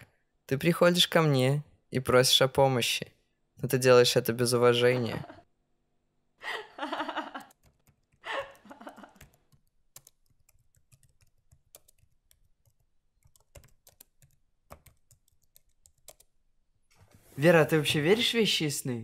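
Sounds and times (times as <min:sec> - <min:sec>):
laptop keyboard typing: 0:07.4 - 0:08.2, 0:09.1 - 0:16.4.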